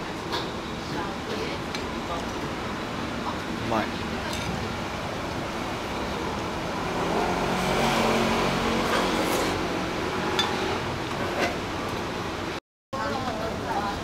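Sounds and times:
street background noise: 0:00.0 - 0:14.0
motor vehicle passing: 0:05.4 - 0:11.5.

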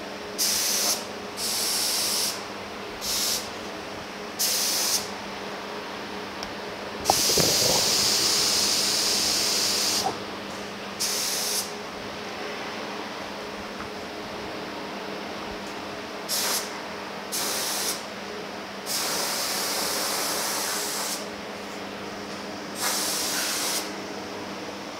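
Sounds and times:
spray gun hissing: 0:03.0 - 0:03.5, 0:07.1 - 0:10.1.

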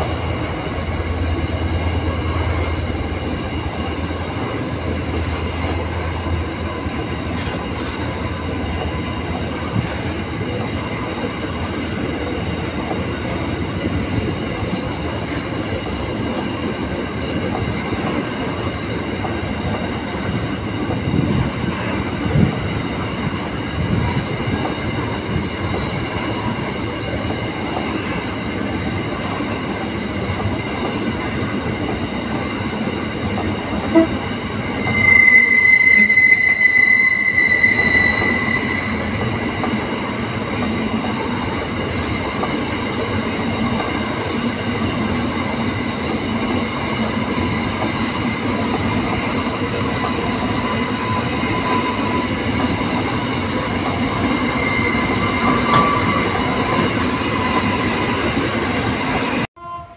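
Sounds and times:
freight train rumbling past: 0:00.0 - 0:59.9
thin high tones: 0:34.6 - 0:39.9.

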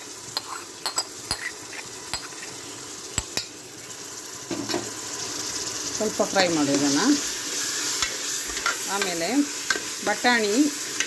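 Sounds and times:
onions sizzling: 0:00.0 - 0:11.0
metal spoon clinking against pot: 0:00.4 - 0:01.5.

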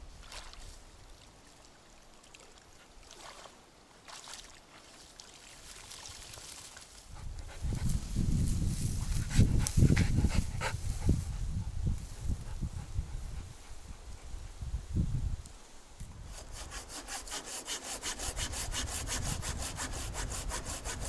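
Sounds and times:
rustling in grass: 0:03.1 - 0:17.5
dog panting: 0:09.0 - 0:14.3.

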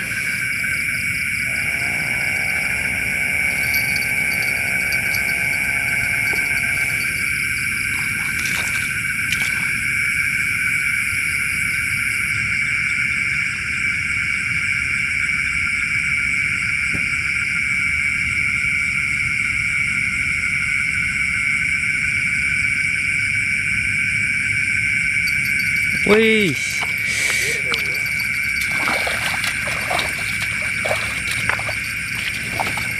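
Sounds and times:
crickets chirring: 0:00.0 - 0:32.9.

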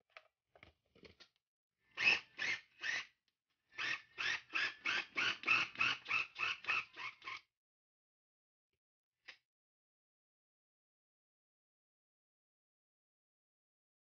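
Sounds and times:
food chopper pulsing: 0:02.0 - 0:03.0, 0:03.7 - 0:07.4.

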